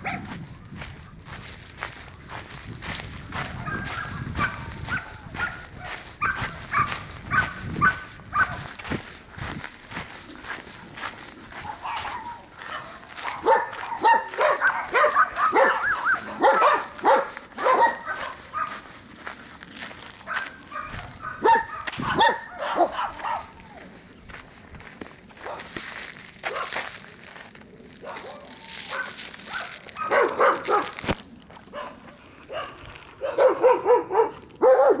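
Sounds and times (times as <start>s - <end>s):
dog barking and yipping: 0.0s - 0.4s, 3.3s - 8.9s, 11.5s - 19.0s, 20.3s - 23.6s, 25.4s - 25.7s, 26.4s - 26.9s, 28.0s - 31.1s, 31.7s - 35.0s.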